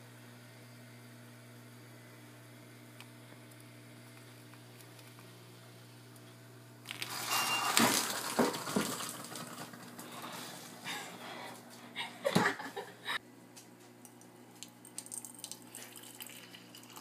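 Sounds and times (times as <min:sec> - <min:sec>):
moka pot sputtering and hissing: 0:06.8 - 0:10.8, 0:15.5 - 0:17.0.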